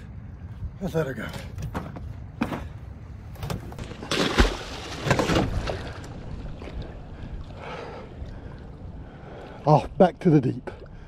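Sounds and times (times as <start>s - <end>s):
water sloshing: 2.6s - 10.0s
fish splashing: 3.8s - 7.0s.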